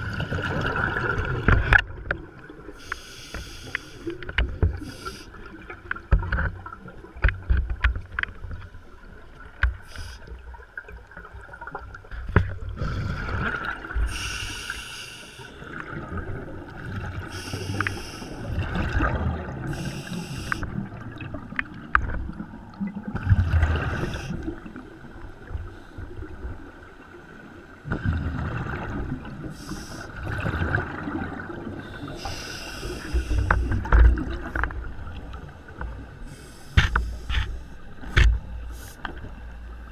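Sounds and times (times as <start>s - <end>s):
exhaled bubbles gushing: 0.0s - 2.8s, 10.5s - 14.2s, 18.4s - 20.0s, 20.7s - 25.0s, 27.8s - 35.6s
diver breathing through regulator: 2.8s - 4.1s, 14.0s - 15.7s, 17.3s - 18.5s, 19.7s - 20.7s, 29.5s - 30.2s, 31.8s - 33.9s, 36.2s - 37.8s.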